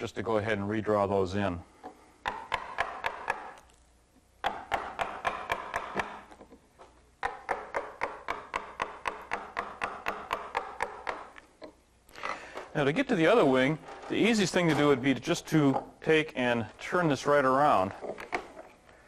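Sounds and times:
mallet tapping gouge through wood: 0:02.2 - 0:03.7, 0:04.4 - 0:06.6, 0:07.2 - 0:11.8.

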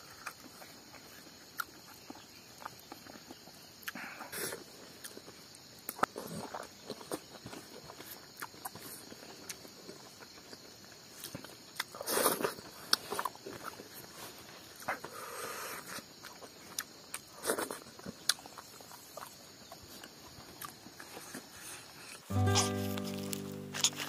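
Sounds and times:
person chewing: 0:15.9 - 0:24.0
fingers rustling on a leaf: 0:21.0 - 0:24.0.

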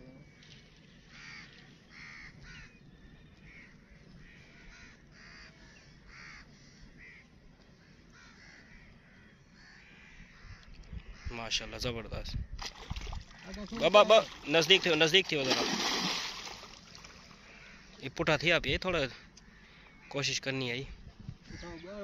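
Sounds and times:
crows cawing: 0:01.1 - 0:02.8, 0:03.4 - 0:11.4, 0:17.2 - 0:18.0, 0:19.0 - 0:20.2.

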